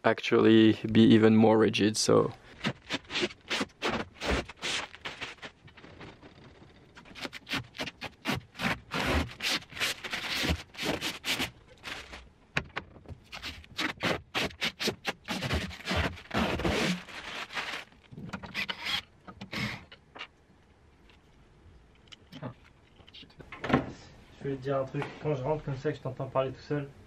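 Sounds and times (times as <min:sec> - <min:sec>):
plastic and metal parts scraping: 0:02.5 - 0:20.3.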